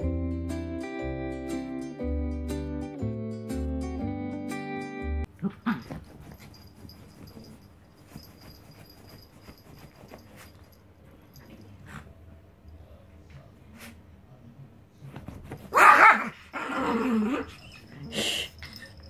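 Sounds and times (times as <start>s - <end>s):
rustling on a bed: 5.8s - 10.8s, 15.0s - 15.9s.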